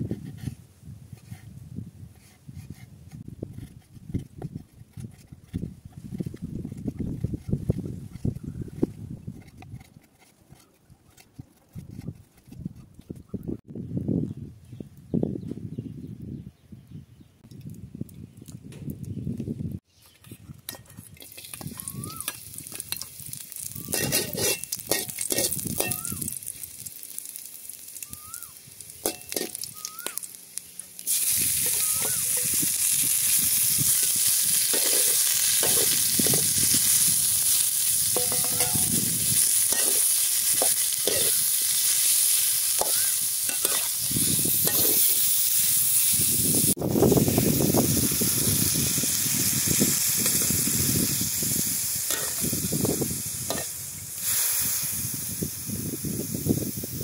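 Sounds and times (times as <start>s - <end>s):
metal spatula scraping: 2.1s - 13.3s, 20.0s - 28.1s, 28.9s - 46.0s, 52.1s - 52.6s, 53.4s - 53.7s
meat sizzling in a wok: 21.2s - 57.0s.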